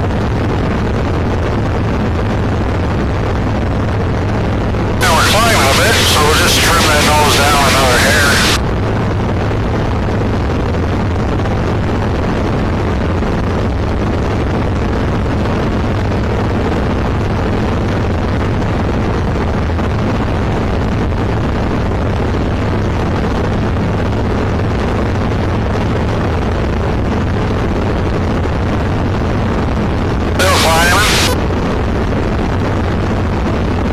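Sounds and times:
light aircraft engine droning: 0.0s - 10.0s.

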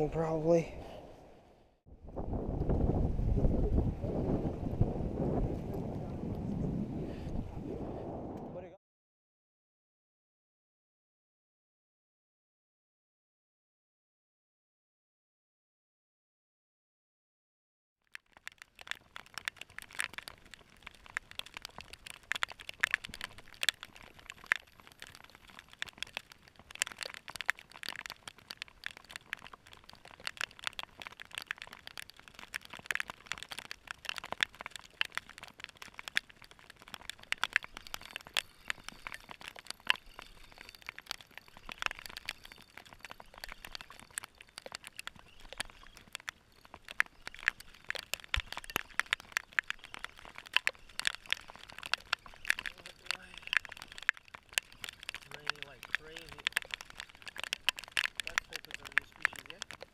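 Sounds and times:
rain ticking on plastic housing: 18.0s - 59.9s.

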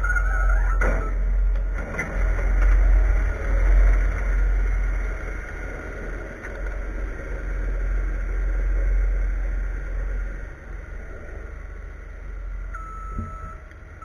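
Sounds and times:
diesel engine rumbling: 0.0s - 14.0s.

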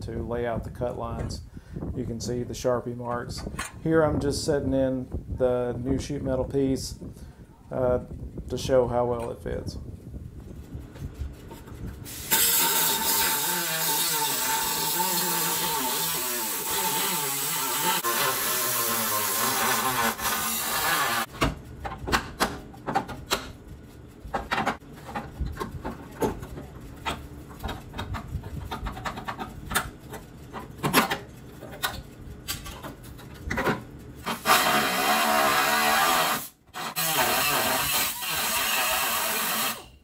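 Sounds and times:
cut-off wheel grinding steel: 12.0s - 21.3s, 34.2s - 40.0s
metal clicks and knocks: 24.3s - 33.9s.

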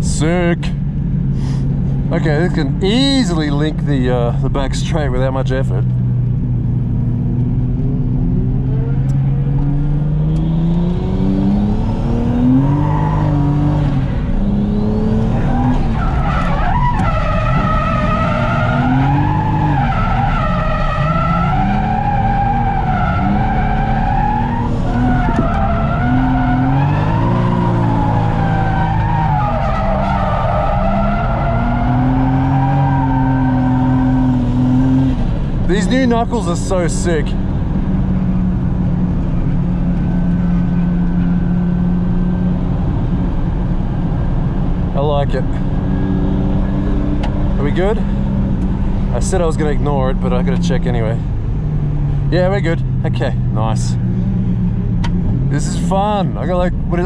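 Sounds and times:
car engine revving: 0.0s - 57.0s
tyres squealing: 15.2s - 34.9s.

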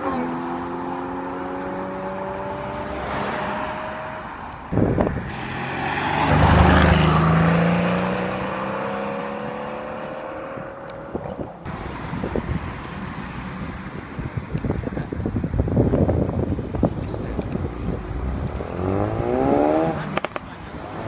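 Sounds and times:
engine hum: 0.0s - 21.0s
car driving past: 0.4s - 4.5s, 5.2s - 10.9s.

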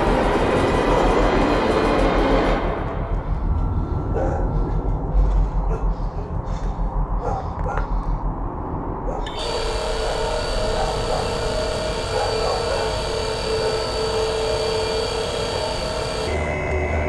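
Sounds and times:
loud dense droning noise: 0.0s - 17.0s
steady whining tones: 0.0s - 17.0s
low pulsing rumble: 0.1s - 9.2s.

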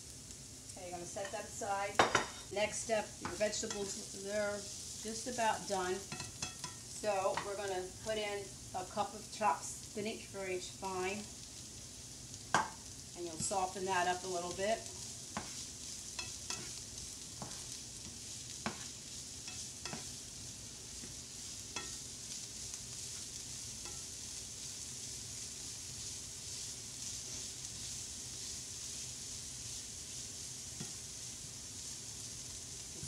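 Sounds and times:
vegetables sizzling in oil: 0.0s - 33.0s
spoon clicking against pan: 6.1s - 6.8s, 16.2s - 16.7s, 21.8s - 22.0s.

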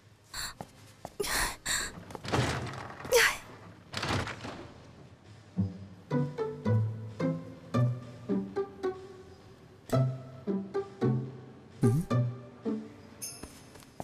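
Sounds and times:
stall doors banging: 2.2s - 5.1s.

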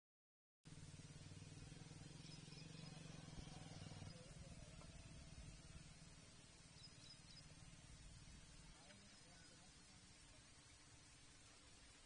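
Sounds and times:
vehicle engine hum pulsing: 0.7s - 9.6s.

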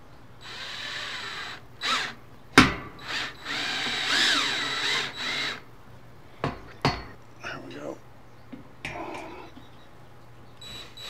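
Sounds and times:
cordless drill driving screw: 0.4s - 2.2s, 3.0s - 5.6s.

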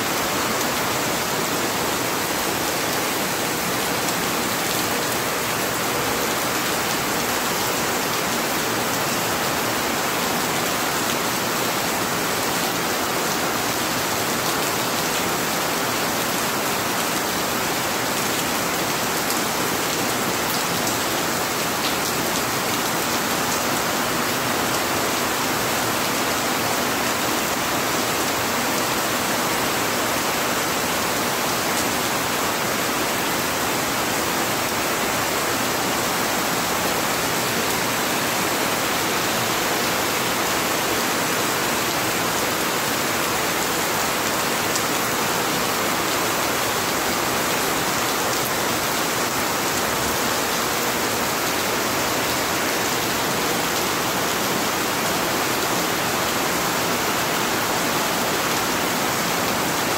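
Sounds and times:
heavy rain pouring: 0.0s - 59.9s.

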